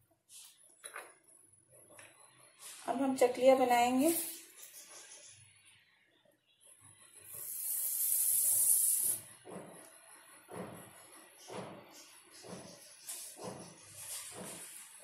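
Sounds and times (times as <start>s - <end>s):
loud hiss: 7.4s - 9.2s.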